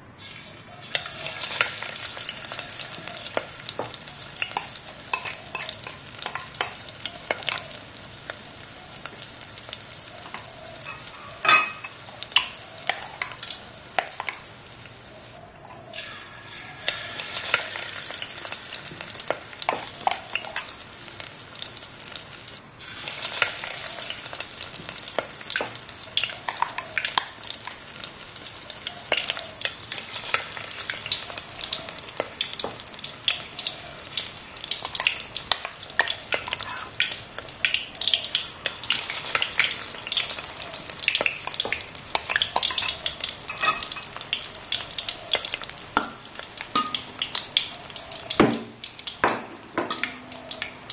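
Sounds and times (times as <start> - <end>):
fritters sizzling in hot oil: 0.2 - 15.4, 16.0 - 50.9
metal spoon moving in oil: 15.2 - 20.7, 33.4 - 37.6, 38.6 - 45.7.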